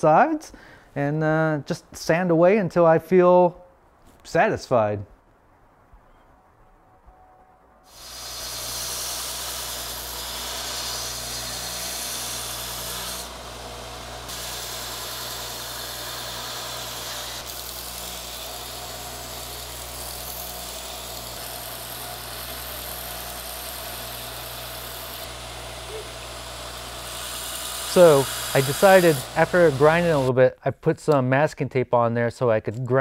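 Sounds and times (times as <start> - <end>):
belt grinder motor hum: 7.9 - 30.3
belt grinding wood: 7.9 - 30.3.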